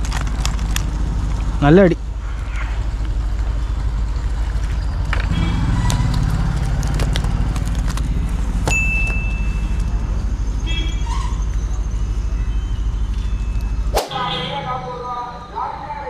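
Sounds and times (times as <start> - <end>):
short high ringing tone: 14.1 - 15.9.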